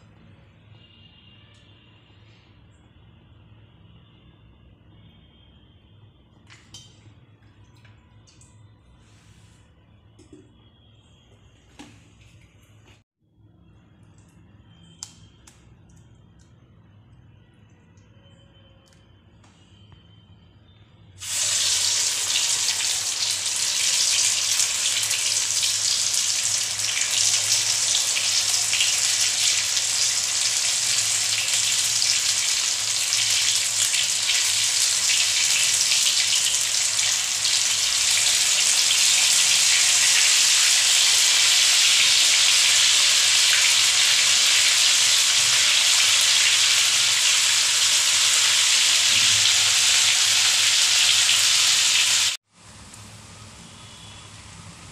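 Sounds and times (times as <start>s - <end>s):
batter deep-frying in hot oil: 21.2s - 54.9s.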